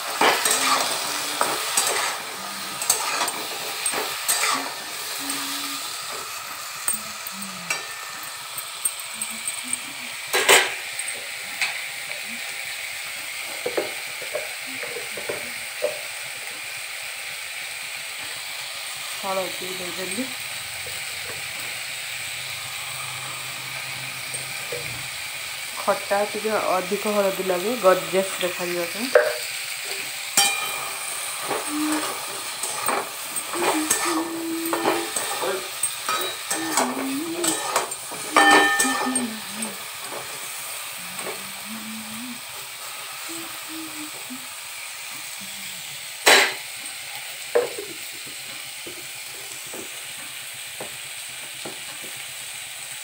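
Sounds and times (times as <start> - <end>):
spoon scraping and knocking pan: 0.0 - 4.9, 28.3 - 39.5, 47.6 - 49.1
vegetables sizzling in oil: 0.0 - 53.0.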